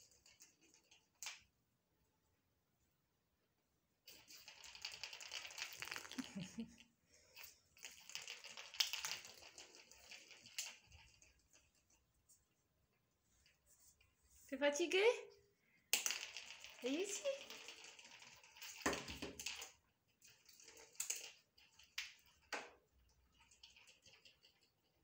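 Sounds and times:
kitten claws clicking on floor: 0:00.0 - 0:01.5, 0:04.1 - 0:12.0, 0:15.9 - 0:25.0.

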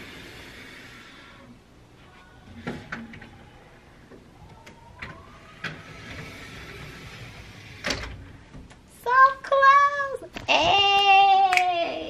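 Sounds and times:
sliding door on track: 0:05.0 - 0:08.4.

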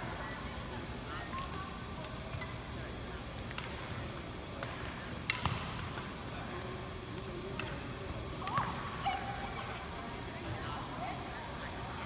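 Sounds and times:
rackets striking shuttlecock: 0:03.4 - 0:04.0, 0:04.6 - 0:06.2, 0:07.5 - 0:08.8.

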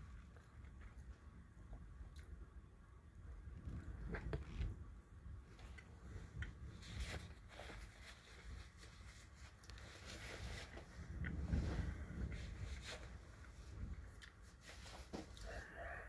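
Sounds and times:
fabric rustling: 0:05.6 - 0:15.5.

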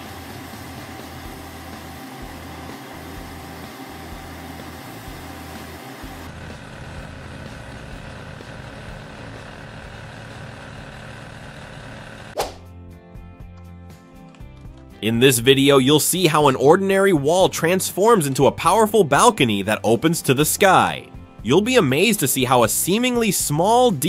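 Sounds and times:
diesel engine running: 0:00.0 - 0:12.4.

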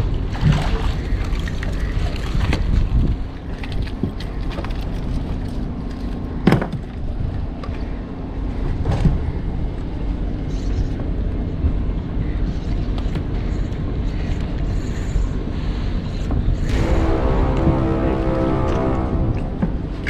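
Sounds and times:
faint constant hum: 0:00.0 - 0:20.0
low engine drone: 0:07.5 - 0:20.0.

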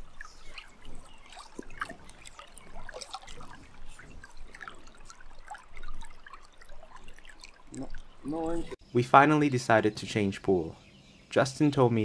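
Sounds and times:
small splashes and gurgles: 0:00.0 - 0:08.8
river water running: 0:00.0 - 0:10.6.

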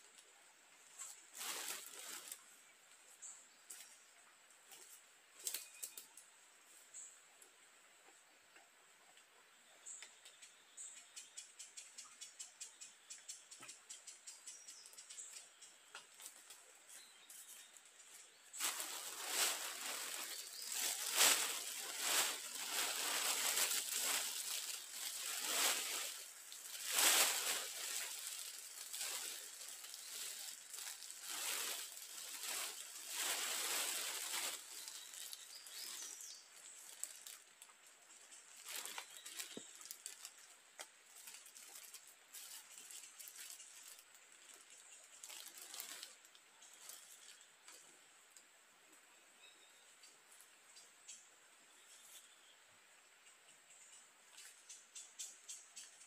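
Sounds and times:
plastic sheeting crinkling: 0:00.9 - 0:02.6, 0:16.2 - 0:47.8.

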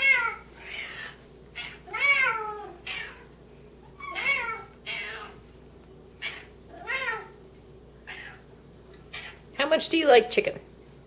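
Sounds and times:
cats meowing: 0:00.0 - 0:05.4, 0:06.2 - 0:07.4, 0:08.0 - 0:08.5, 0:09.1 - 0:09.5.

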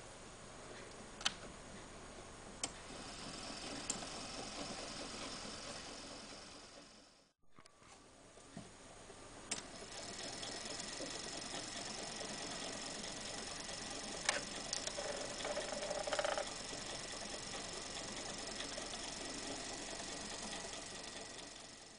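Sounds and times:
small engine ticking steadily: 0:02.7 - 0:07.3, 0:09.6 - 0:21.9.

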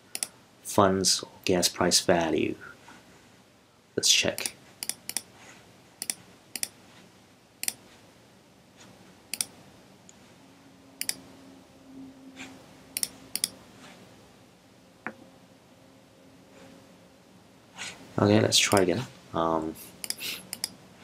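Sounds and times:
computer mouse button clicks: 0:13.0 - 0:13.6.

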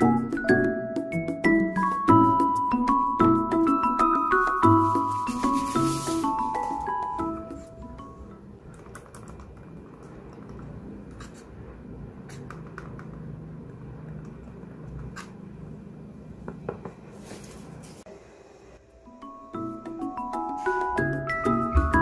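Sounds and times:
plastic mouse rubbing in hands: 0:04.4 - 0:07.0.

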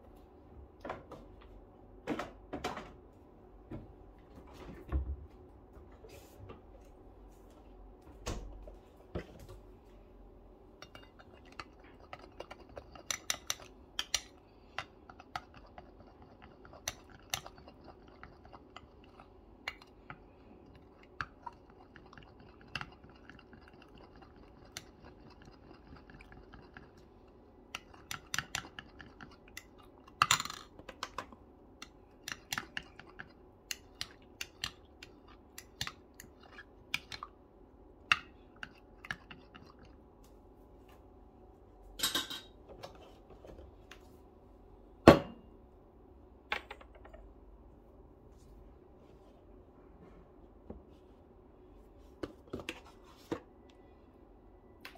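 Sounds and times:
teaspoon stirring in glass cup: 0:10.8 - 0:27.0.

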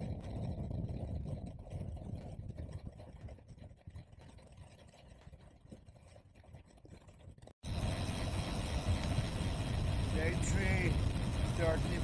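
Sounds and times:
bicycle rolling on pavement: 0:00.0 - 0:02.8, 0:07.1 - 0:12.0
wind buffeting microphone: 0:00.0 - 0:04.3, 0:07.6 - 0:12.0.

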